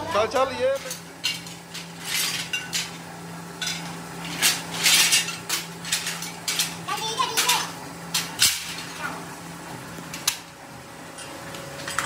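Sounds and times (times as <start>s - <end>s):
scrap metal clanking into tray: 3.6s - 6.8s.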